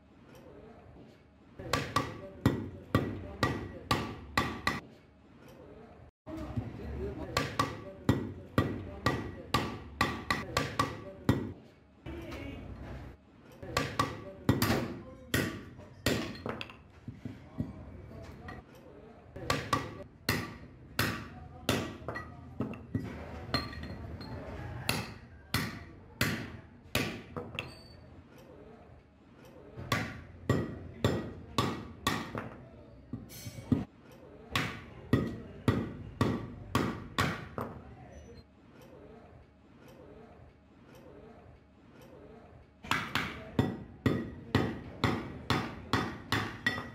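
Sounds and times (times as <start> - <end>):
hammer striking metal rivets: 42.9 - 46.9.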